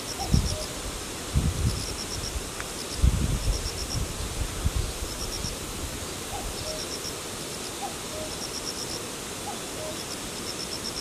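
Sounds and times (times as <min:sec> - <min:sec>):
grass insects chirping: 0:00.0 - 0:11.0
steady hiss: 0:00.0 - 0:11.0
cuckoo calling: 0:06.3 - 0:06.9, 0:07.8 - 0:08.4, 0:09.4 - 0:10.1.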